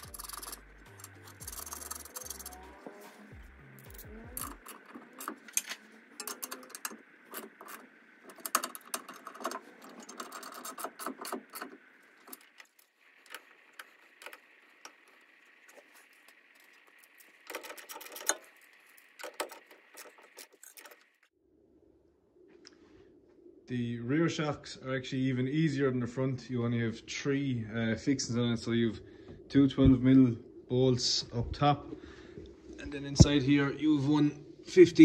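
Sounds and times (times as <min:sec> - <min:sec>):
hand ratchet clicking: 0:00.0 - 0:02.8, 0:03.8 - 0:21.1
steel tools clinking: 0:00.0 - 0:02.8, 0:03.8 - 0:21.1.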